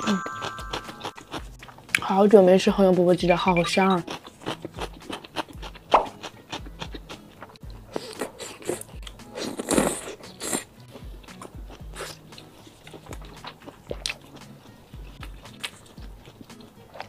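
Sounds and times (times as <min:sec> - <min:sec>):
background music with low beat: 0:00.0 - 0:17.0
wet chewing and mouth noises: 0:00.2 - 0:17.0
biting into food: 0:03.9 - 0:10.7.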